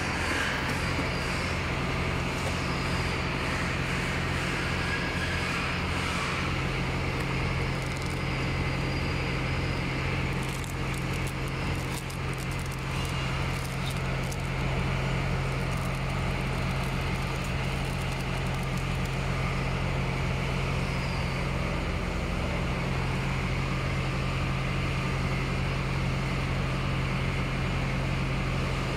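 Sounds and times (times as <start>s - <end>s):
machine humming with regular beat: 0.0s - 20.8s
short crackles: 15.4s - 19.2s.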